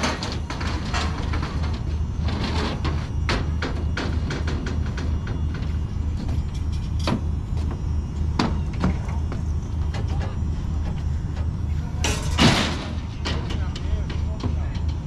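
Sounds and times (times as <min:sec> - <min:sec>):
metallic clanks and knocks: 0:00.0 - 0:07.7, 0:12.0 - 0:15.0
engine idling: 0:00.0 - 0:15.0.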